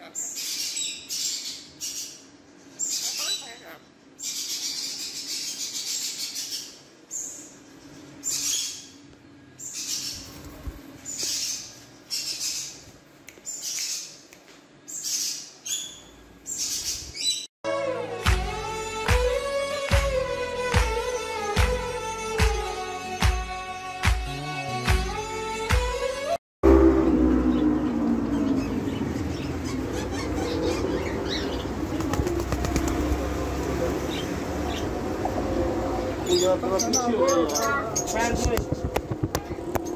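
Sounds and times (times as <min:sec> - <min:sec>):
steady background hum: 0:00.0 - 0:17.4, 0:27.0 - 0:39.9
parrot flapping wings: 0:10.2 - 0:11.1, 0:31.8 - 0:33.4, 0:38.2 - 0:39.9
parrot screeching: 0:29.6 - 0:31.5.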